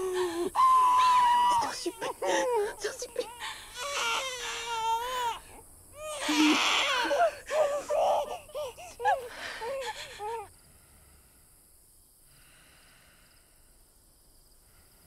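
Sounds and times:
baby crying: 0.0s - 10.5s.

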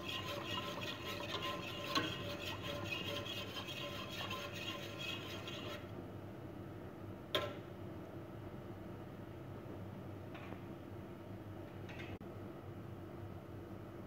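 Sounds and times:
whisk scraping a metal pot: 0.0s - 5.9s.

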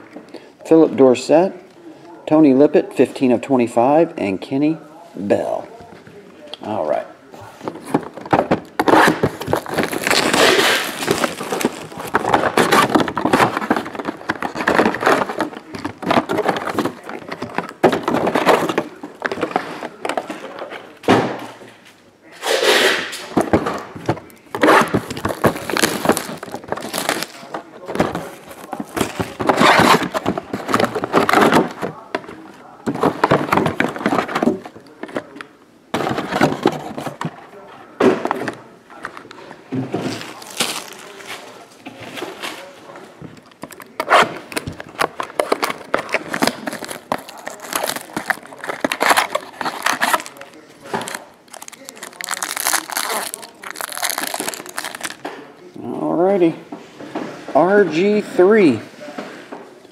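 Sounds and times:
cardboard boxes handled: 7.4s - 21.2s, 23.3s - 55.2s
plastic wrap crinkling and tearing: 7.8s - 20.6s, 22.4s - 35.4s, 40.0s - 55.2s.

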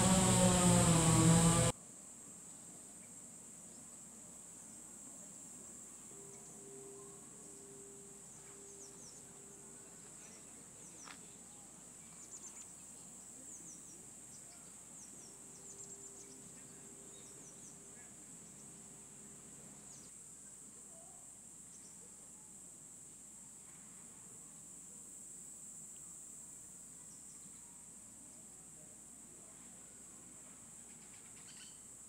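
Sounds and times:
insects trilling: 0.0s - 1.7s, 30.7s - 32.0s.

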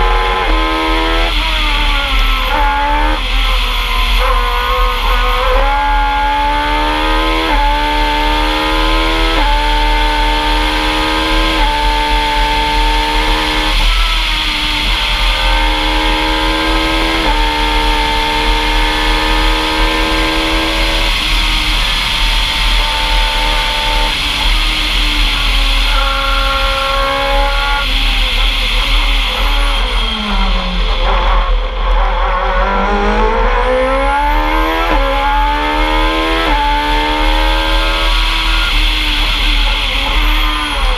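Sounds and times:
race car engine accelerating: 0.0s - 40.9s.

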